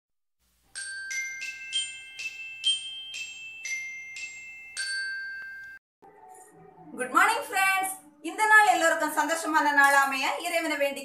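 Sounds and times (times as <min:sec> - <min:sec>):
bell-like jingle melody: 0:00.7 - 0:05.8.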